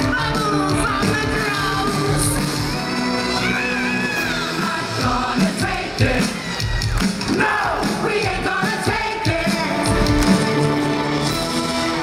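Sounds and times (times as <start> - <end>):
drum kit beat: 4.6 - 12.0.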